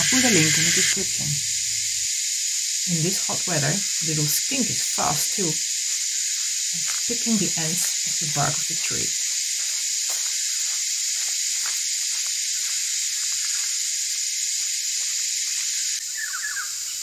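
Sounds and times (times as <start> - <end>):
cicadas chorus shrilling: 0.0 - 17.0.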